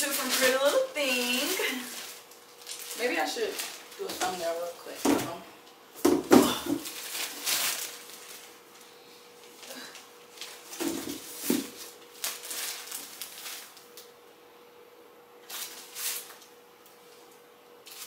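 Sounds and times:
plastic bag crinkling: 0.0s - 5.4s, 6.5s - 14.1s, 15.4s - 16.5s
faint steady hum: 0.0s - 18.0s.

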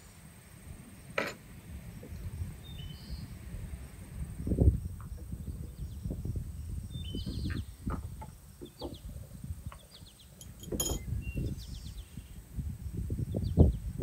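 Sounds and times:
small birds chirping: 0.9s - 14.0s
brief clink: 10.4s - 11.1s.

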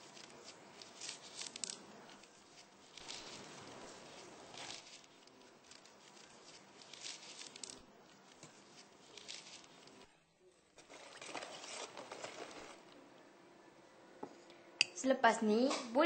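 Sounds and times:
leaves rustling and crinkling: 0.0s - 10.1s, 10.8s - 13.0s.

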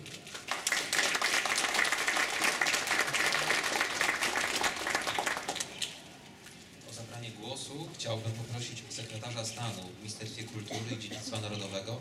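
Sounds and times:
audience applauding: 0.3s - 5.8s.

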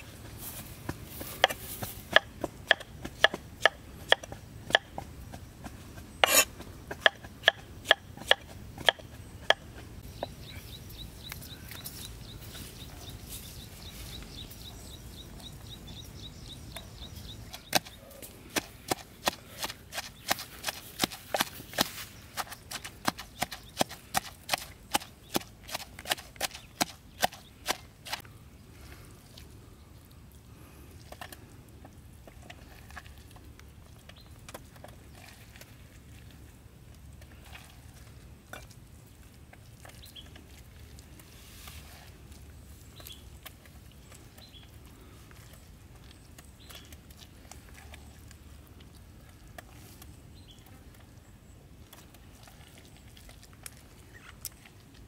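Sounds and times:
knife chopping on wooden board: 1.4s - 4.9s, 6.2s - 9.6s.

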